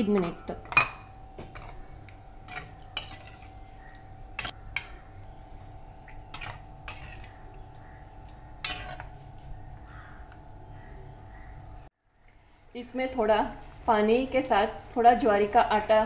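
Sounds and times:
faint steady hum: 0:00.0 - 0:16.0
spoon scraping metal pan: 0:02.5 - 0:03.6, 0:06.3 - 0:07.3, 0:08.6 - 0:09.3.

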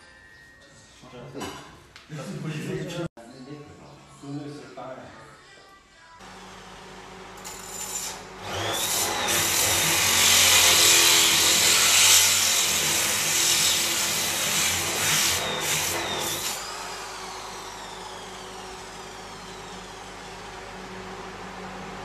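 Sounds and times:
grinder motor whine winding down: 0:06.2 - 0:22.0
grinder pad grinding stone: 0:07.3 - 0:20.6.

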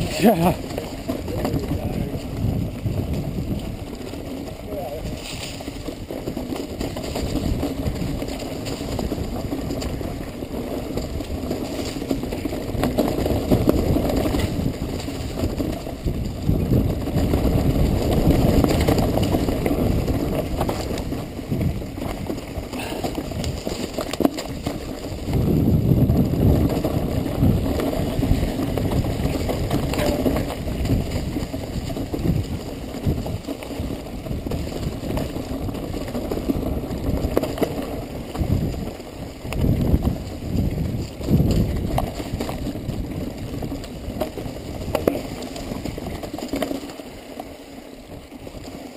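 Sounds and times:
bike rattles and knocks: 0:00.0 - 0:48.9
bike tyres rumbling on rocky trail: 0:00.0 - 0:48.9
wind noise on microphone: 0:00.0 - 0:48.9.

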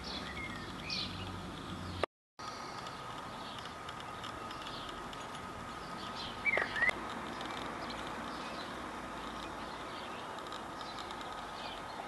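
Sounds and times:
small birds chirping: 0:00.0 - 0:12.0.

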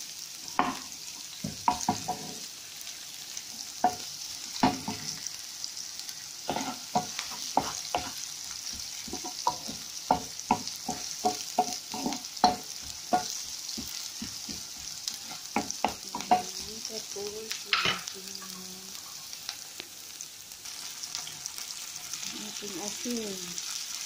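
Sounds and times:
onion sizzling in oil: 0:00.0 - 0:24.0
spatula tapping and scraping pan: 0:00.5 - 0:02.5, 0:06.5 - 0:16.7.

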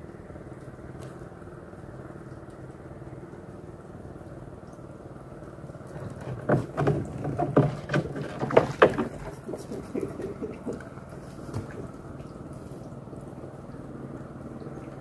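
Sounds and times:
small engine droning: 0:00.0 - 0:15.0
loud irregular knocks and splashes: 0:05.8 - 0:12.5.

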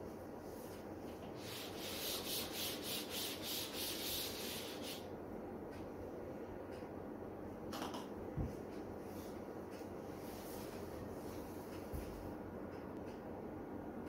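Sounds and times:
scratchy rubbing on a writing surface: 0:01.4 - 0:05.0.

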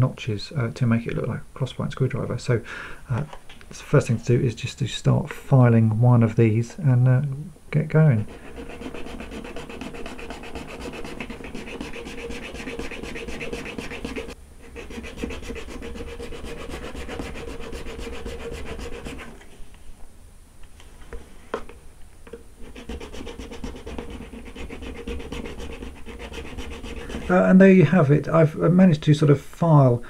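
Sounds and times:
needle file rasping on plastic: 0:08.2 - 0:19.4, 0:22.6 - 0:27.4.

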